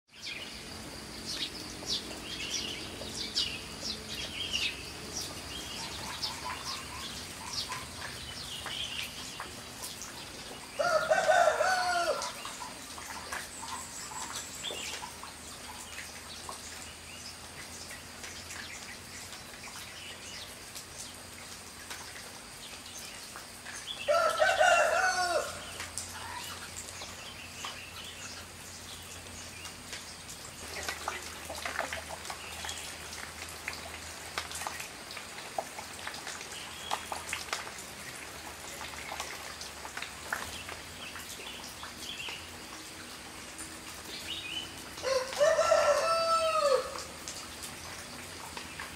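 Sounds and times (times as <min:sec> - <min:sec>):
light rain hissing: 0:00.1 - 0:48.9
rooster crowing: 0:10.8 - 0:12.4, 0:24.1 - 0:25.8, 0:45.0 - 0:47.1.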